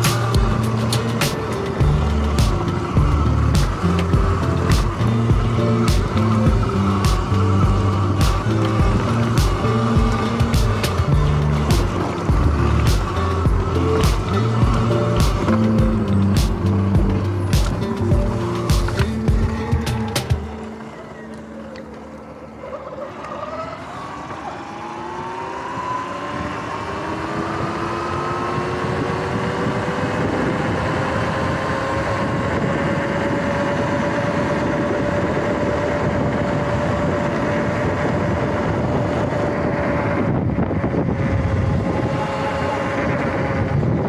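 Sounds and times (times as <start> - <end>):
tyre noise: 0.0 - 24.5
electric motorbike motor whining: 0.0 - 44.0
wind noise: 25.5 - 44.0.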